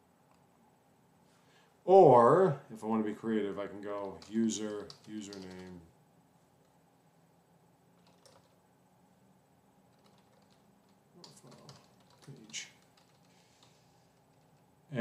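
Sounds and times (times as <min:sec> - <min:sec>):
faint keyboard typing: 0:03.8 - 0:05.9, 0:08.0 - 0:08.6, 0:09.9 - 0:14.7.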